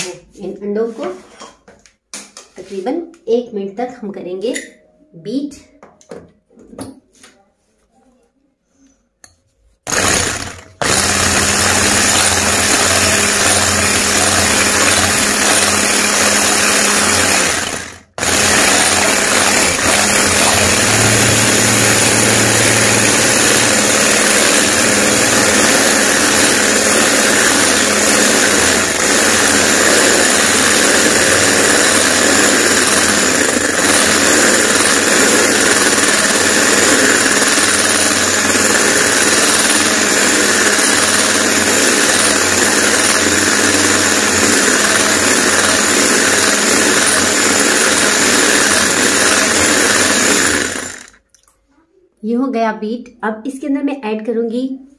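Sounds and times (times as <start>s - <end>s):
electric hand mixer whisking: 9.8s - 51.2s.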